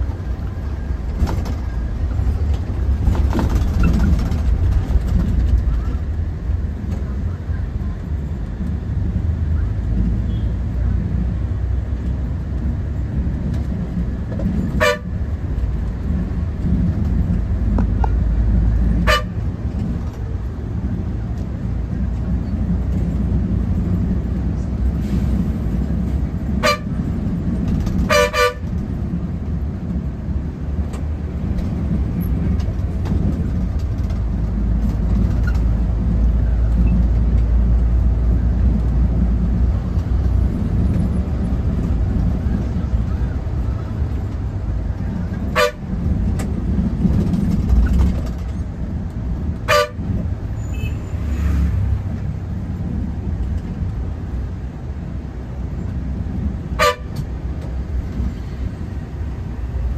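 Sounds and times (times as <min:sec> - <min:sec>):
bus engine and road noise: 0:00.0 - 0:59.9
vehicle horn toots: 0:14.8 - 0:15.1, 0:19.0 - 0:19.4, 0:26.6 - 0:27.0, 0:28.1 - 0:28.7, 0:45.5 - 0:45.8, 0:49.7 - 0:50.0, 0:50.6 - 0:51.2, 0:56.8 - 0:57.2.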